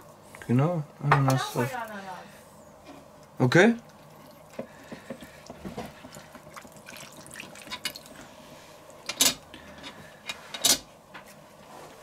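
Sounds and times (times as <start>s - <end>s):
juice dripping and trickling: 3.1s - 9.7s.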